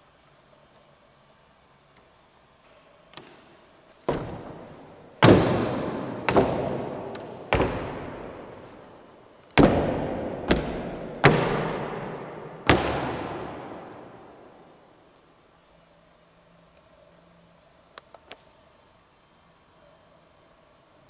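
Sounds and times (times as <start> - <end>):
sharp bangs echoing: 4.1 - 9.0, 9.6 - 14.9.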